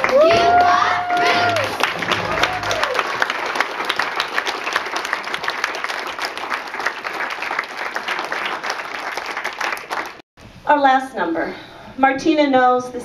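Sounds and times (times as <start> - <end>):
audience clapping: 0.0 - 10.2.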